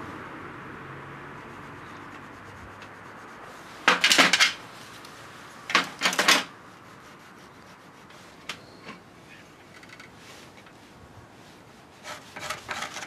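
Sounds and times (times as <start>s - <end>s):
scraping on wooden handle: 12.0s - 13.0s.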